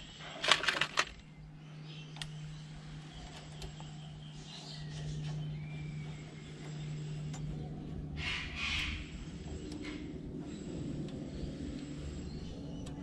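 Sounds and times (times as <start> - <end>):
steady low hum: 0.0 - 13.0
small metal parts clicking: 0.4 - 1.3.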